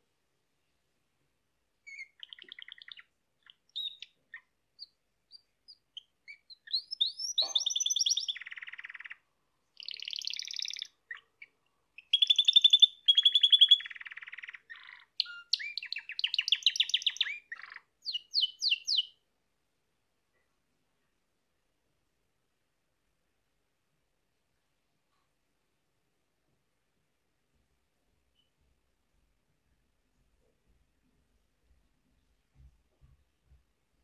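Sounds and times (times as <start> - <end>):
canary singing trills: 1.8 - 19.2.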